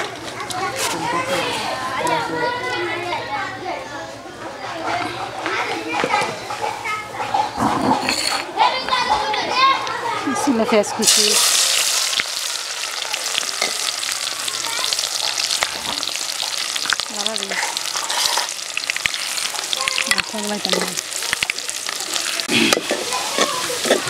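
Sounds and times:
metal spatula scraping pot: 0:07.7 - 0:08.5, 0:16.8 - 0:21.1
onion sizzling in hot oil: 0:10.9 - 0:24.0.

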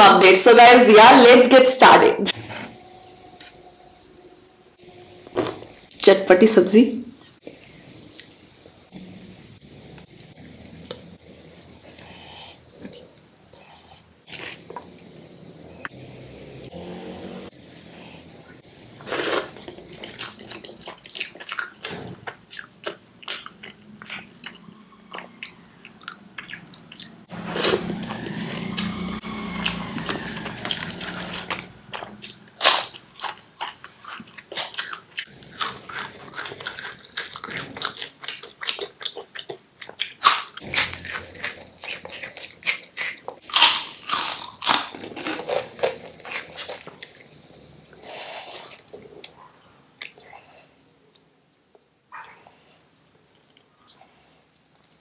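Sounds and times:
chewing food: 0:19.4 - 0:47.3
crisp wafer crunching: 0:39.9 - 0:47.2.

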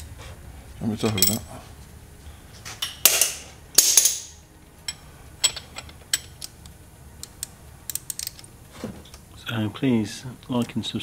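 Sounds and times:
metal tools clinking: 0:01.0 - 0:01.5, 0:04.9 - 0:06.4.

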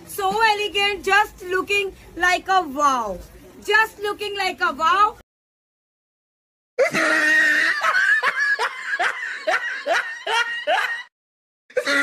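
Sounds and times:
high-pitched laugh: 0:06.8 - 0:11.1, 0:11.7 - 0:12.0.

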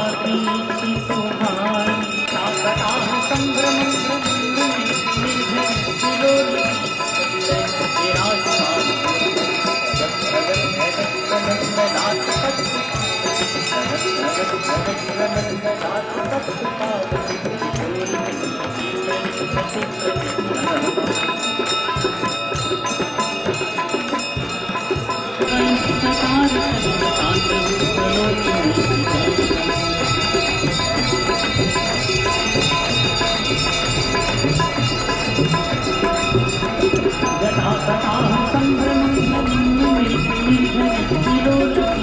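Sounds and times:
devotional singing: 0:00.0 - 0:18.2, 0:25.4 - 0:42.0
hand bells ringing: 0:00.0 - 0:42.0
person singing: 0:25.4 - 0:31.8, 0:37.0 - 0:42.0.

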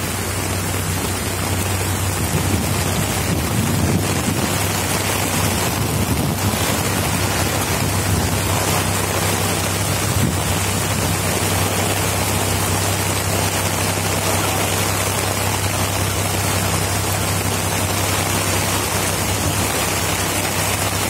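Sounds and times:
heavy rain on umbrella: 0:00.0 - 0:21.0
low traffic hum: 0:00.0 - 0:21.0.

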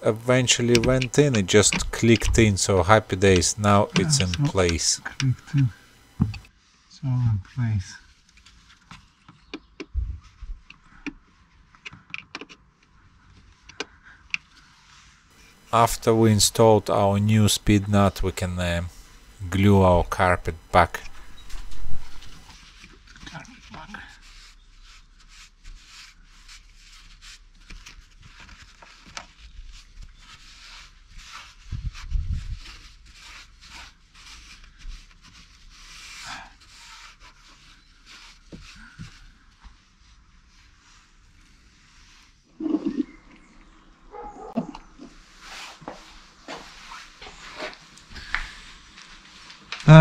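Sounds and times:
scratchy brushing of carpet: 0:14.6 - 0:23.1, 0:23.7 - 0:42.5, 0:45.2 - 0:47.9.

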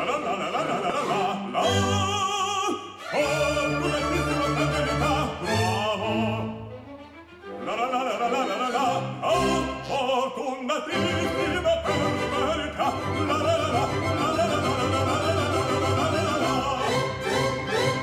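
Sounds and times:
operatic voice with orchestra: 0:00.0 - 0:18.0.

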